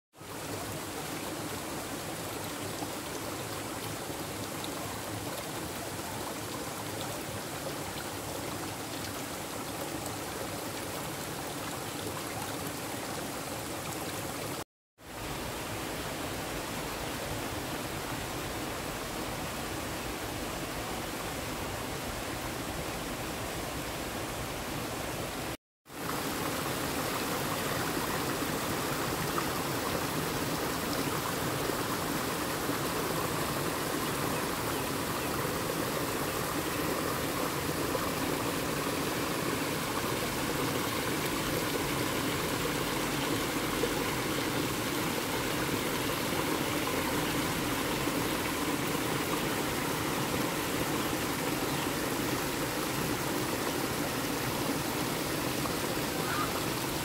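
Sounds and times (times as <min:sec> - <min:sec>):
stream water flowing: 0:00.2 - 0:57.0.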